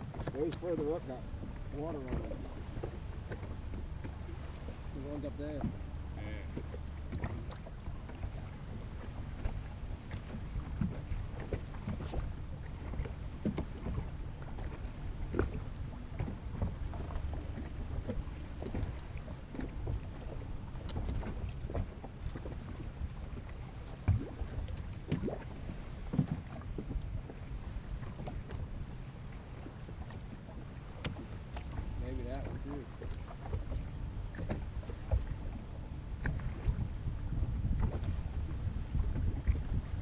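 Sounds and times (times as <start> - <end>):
water lapping against boat hull: 0.0 - 40.0
wind rumble on microphone: 0.0 - 40.0.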